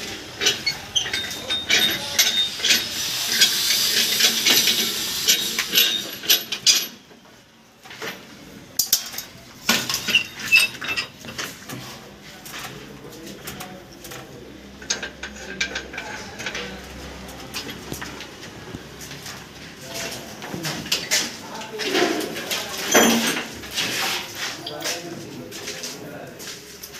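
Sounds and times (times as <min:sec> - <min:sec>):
metallic clinks and clanks: 0:00.3 - 0:07.0, 0:08.8 - 0:11.5, 0:22.9 - 0:23.9.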